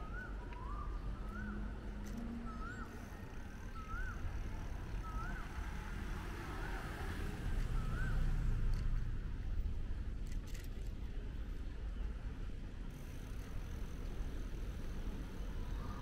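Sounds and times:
city street traffic rumble: 0:00.0 - 0:16.0
motor vehicle passing: 0:02.2 - 0:09.1.

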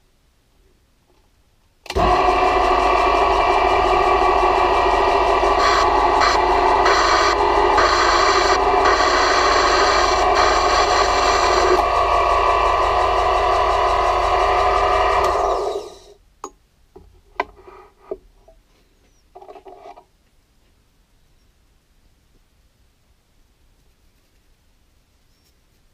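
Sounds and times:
drill boring into metal: 0:01.9 - 0:16.1
metal lathe running: 0:01.9 - 0:16.1
tooling rattle: 0:01.9 - 0:16.1
lathe winding down: 0:01.9 - 0:16.2.

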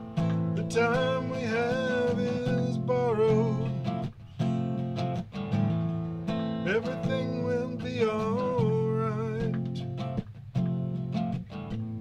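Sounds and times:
acoustic guitar strumming: 0:00.0 - 0:12.0
man singing: 0:00.2 - 0:04.0, 0:06.6 - 0:09.9.

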